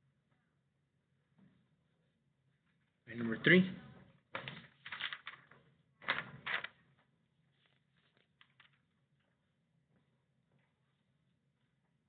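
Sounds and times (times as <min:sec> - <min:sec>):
paper rustling: 0:04.4 - 0:09.4.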